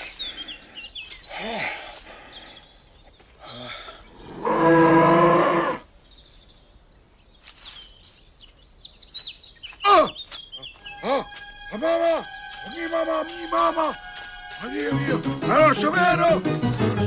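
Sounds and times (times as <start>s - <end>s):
bear calling: 4.1s - 5.8s, 9.8s - 16.8s.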